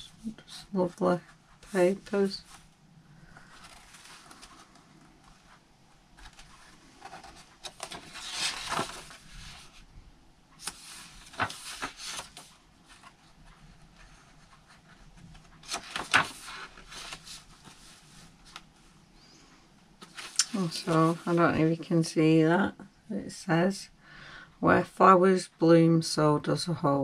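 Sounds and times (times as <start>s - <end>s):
paper pages rustling: 0.2s - 5.6s, 6.2s - 9.8s, 10.6s - 18.9s, 20.0s - 21.5s.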